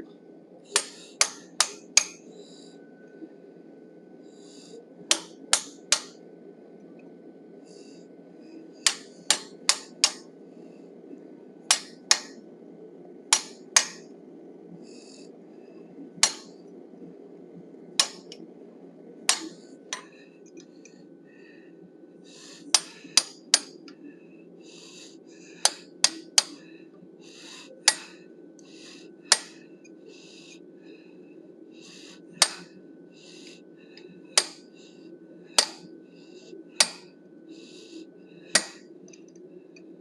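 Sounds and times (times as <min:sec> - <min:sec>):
hammer striking chisel on steel: 0:00.8 - 0:02.2, 0:05.1 - 0:06.1, 0:08.9 - 0:10.2, 0:11.7 - 0:12.3, 0:13.3 - 0:14.0, 0:16.2 - 0:16.5, 0:25.6 - 0:26.6, 0:29.3 - 0:29.5, 0:32.4 - 0:32.6, 0:36.8 - 0:37.0, 0:38.6 - 0:38.8.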